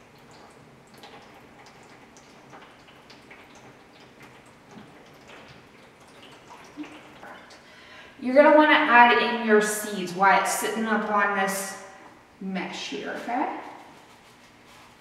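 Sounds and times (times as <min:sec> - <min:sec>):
water dripping into bowl: 0:00.0 - 0:07.7.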